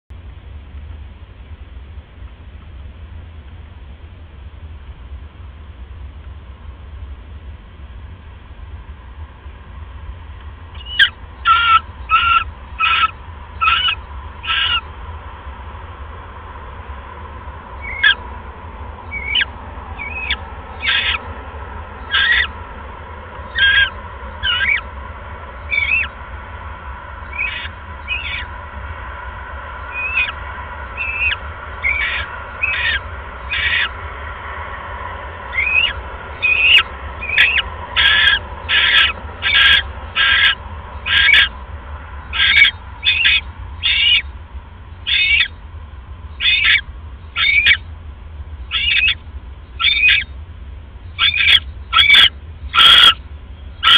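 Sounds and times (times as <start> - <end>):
steady low hum: 0.1 - 53.9
owl chirps: 10.7 - 14.9, 17.8 - 18.3, 19.0 - 21.3, 21.9 - 22.6, 23.5 - 24.9, 25.6 - 26.2, 27.2 - 28.6, 29.8 - 34.0, 35.5 - 41.6, 42.2 - 45.6, 46.3 - 47.9, 48.6 - 50.4, 51.0 - 53.9
owls rasping hiss-like calls: 10.8 - 15.0, 17.7 - 18.3, 19.0 - 22.7, 23.4 - 24.9, 25.6 - 26.2, 27.2 - 29.0, 29.8 - 34.1, 35.5 - 44.3, 45.0 - 45.6, 46.4 - 47.8, 48.7 - 49.2, 49.8 - 50.4, 51.2 - 53.2.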